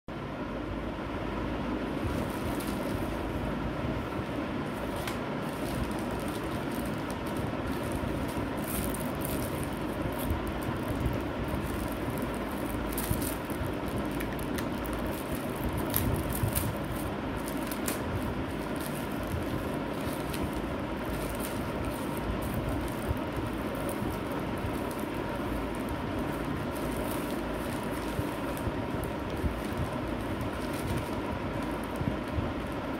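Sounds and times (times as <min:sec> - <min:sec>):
steady background rumble: 0:00.1 - 0:32.9
plastic bag crinkling: 0:01.9 - 0:03.5, 0:04.7 - 0:32.9.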